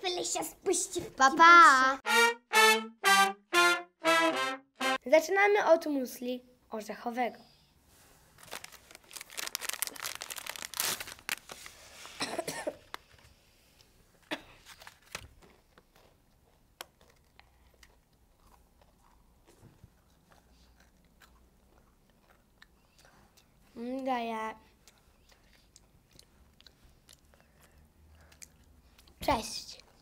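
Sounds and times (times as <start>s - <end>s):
biscuit crunches: 8.4s - 11.8s
plastic wrapper crinkling and tearing: 8.4s - 12.2s
faint chewing: 15.4s - 23.8s, 24.6s - 30.0s.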